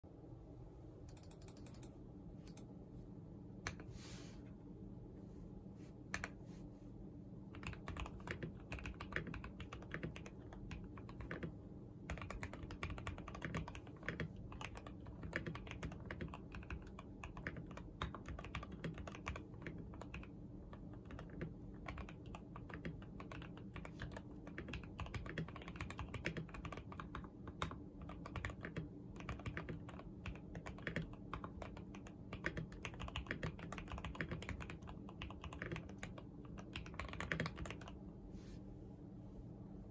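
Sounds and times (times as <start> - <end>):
fast typing on mechanical keyboard: 7.5 - 38.0.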